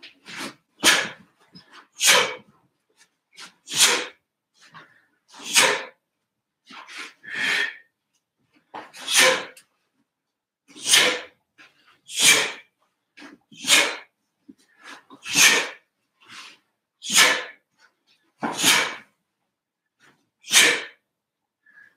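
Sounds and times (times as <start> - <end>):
sharp forceful exhalations: 0.2 - 2.5, 3.4 - 4.2, 5.3 - 6.0, 6.7 - 7.9, 9.0 - 9.6, 10.7 - 11.4, 12.1 - 12.7, 13.6 - 14.1, 14.7 - 17.6, 18.4 - 19.1, 20.4 - 21.0.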